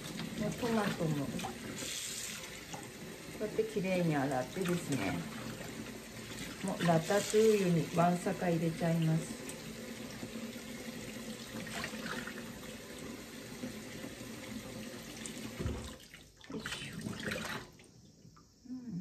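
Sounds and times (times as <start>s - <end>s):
tap running into a sink: 11.4s - 16.0s.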